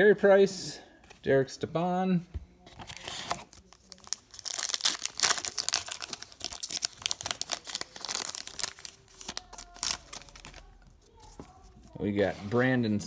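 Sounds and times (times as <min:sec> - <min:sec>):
foil wrapper crinkling: 0:02.9 - 0:11.3.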